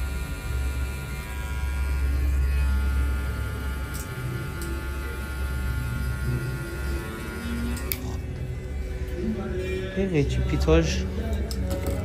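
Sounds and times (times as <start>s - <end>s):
electric hair clipper buzzing: 0.0s - 8.2s.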